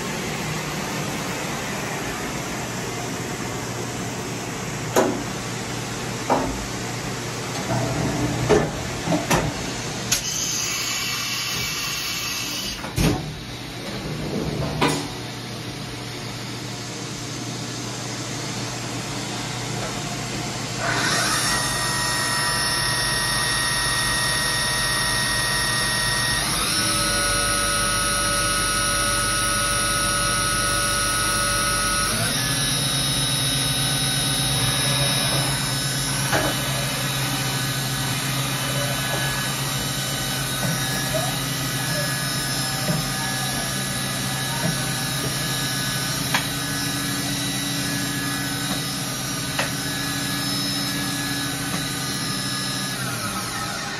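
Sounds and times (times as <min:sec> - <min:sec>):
machine spindle whine: 0:10.1 - 0:12.9, 0:20.7 - 0:53.9.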